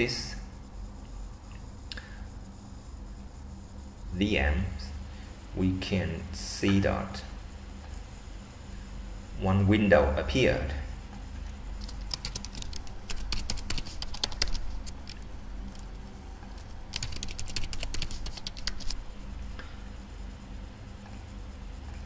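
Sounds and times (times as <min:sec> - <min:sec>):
typing on computer keyboard: 0:11.8 - 0:15.2, 0:16.9 - 0:19.0.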